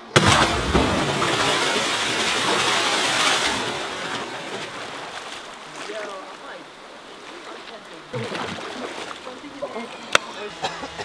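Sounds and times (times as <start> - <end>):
rush of spray and falling water: 0.0 - 7.5
person splashing into water: 0.1 - 5.4.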